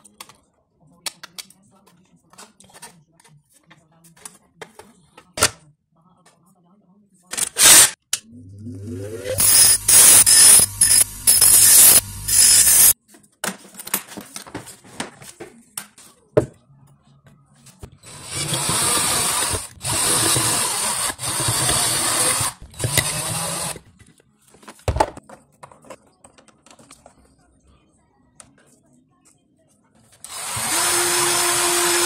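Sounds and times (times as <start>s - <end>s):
bench grinder grinding metal: 8.7s - 13.0s, 18.1s - 23.8s, 30.3s - 32.0s
cordless drill boring: 9.2s - 13.0s, 18.1s - 23.8s, 30.3s - 32.0s.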